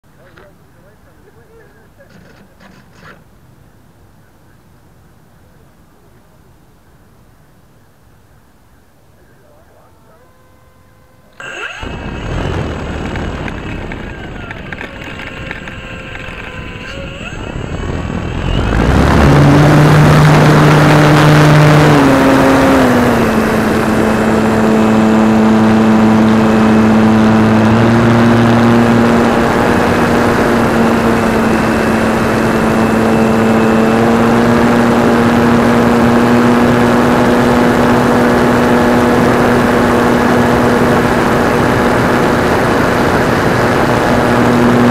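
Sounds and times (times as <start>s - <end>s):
model airplane motor droning: 9.9s - 44.9s.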